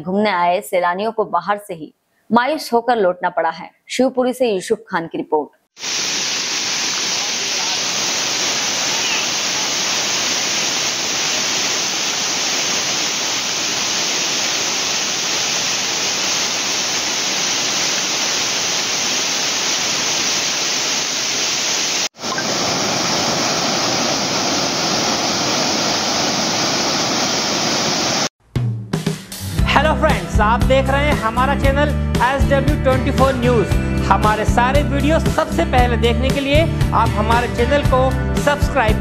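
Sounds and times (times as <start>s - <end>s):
water rushing over a waterfall: 5.8s - 28.3s.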